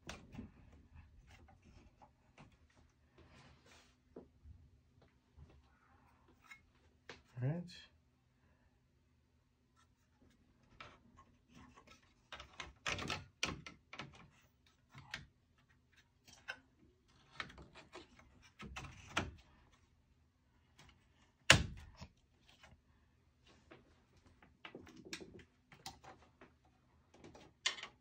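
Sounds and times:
clicks and knocks of metal and plastic: 0:10.7 - 0:15.3, 0:24.3 - 0:28.0.

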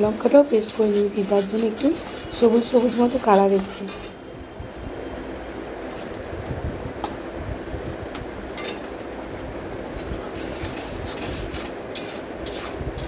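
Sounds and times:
metal spatula scraping paste: 0:00.0 - 0:04.2, 0:10.0 - 0:13.0.

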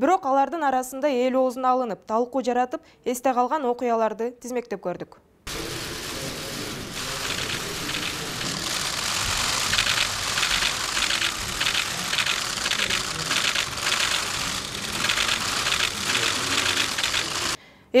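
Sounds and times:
murmur of voices: 0:05.5 - 0:17.6
camera shutters clicking: 0:07.0 - 0:17.6.

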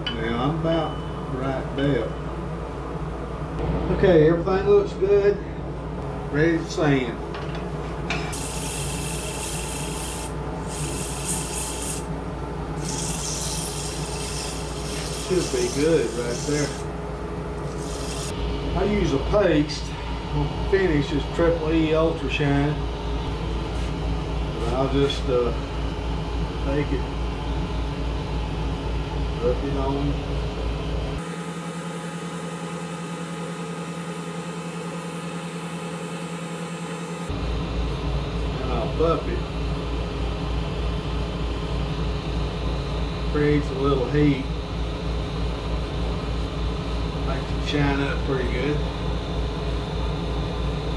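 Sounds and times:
low machine hum: 0:00.0 - 0:50.9
sandpaper rubbing spinning wood: 0:08.4 - 0:12.1, 0:12.8 - 0:16.9, 0:17.6 - 0:18.4
wood lathe motor hum: 0:12.8 - 0:16.9, 0:17.6 - 0:18.4, 0:31.2 - 0:37.3.

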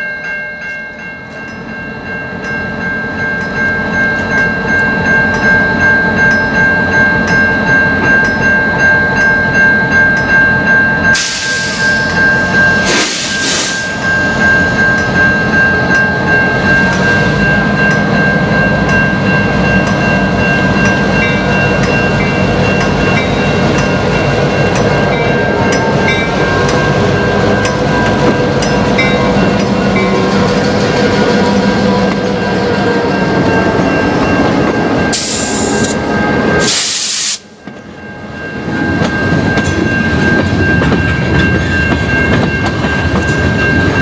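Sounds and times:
crossing bell ringing: 0:00.0 - 0:44.0
diesel locomotives running: 0:01.0 - 0:44.0.

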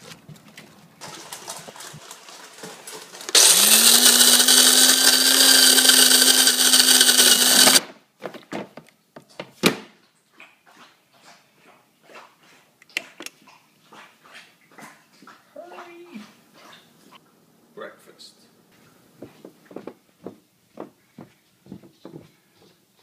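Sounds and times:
coffee grinder motor whirring: 0:02.9 - 0:07.8.

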